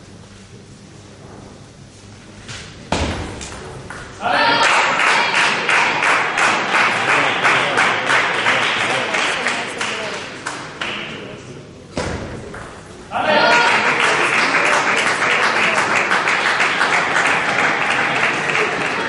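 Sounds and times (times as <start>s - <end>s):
person shouting: 4.2s - 5.4s, 13.1s - 14.0s
audience cheering and clapping: 4.2s - 9.8s, 13.2s - 19.0s.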